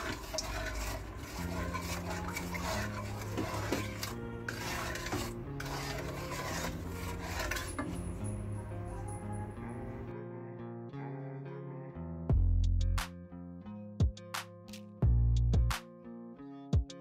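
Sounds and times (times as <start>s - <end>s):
spatula scraping metal pan: 0.0s - 9.2s
background music: 0.0s - 17.0s.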